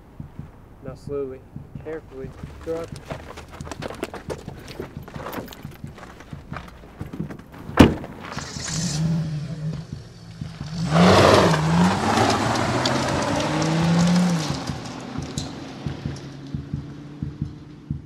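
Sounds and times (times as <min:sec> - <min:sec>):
car engine revving: 0:00.0 - 0:18.0
car door slamming: 0:04.7 - 0:08.8.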